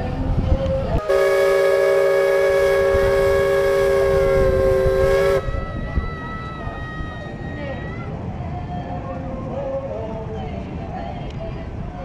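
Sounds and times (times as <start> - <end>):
steam whistle blast with hiss: 1.0 - 5.8.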